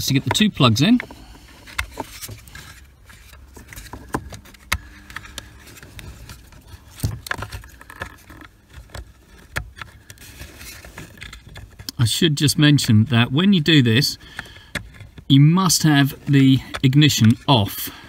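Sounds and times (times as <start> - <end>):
soft rustling and scraping: 0.0 - 12.0.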